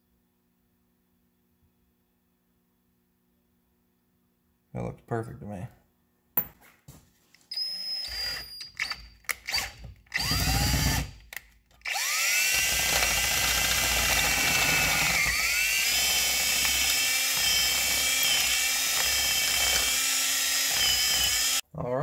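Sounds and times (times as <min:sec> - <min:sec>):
power drill whining: 0:07.6 - 0:11.2, 0:11.8 - 0:21.6.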